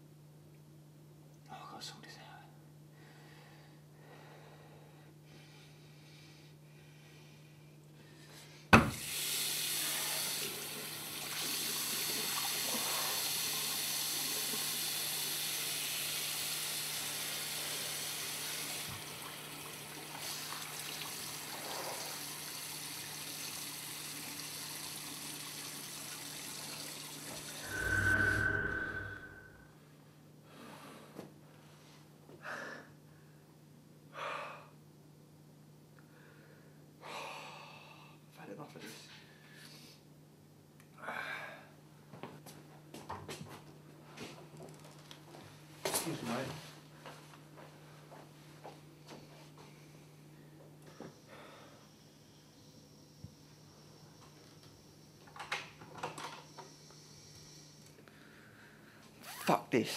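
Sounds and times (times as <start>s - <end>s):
water running into basin: 9.0s - 27.6s
steady high tone: 27.6s - 29.7s.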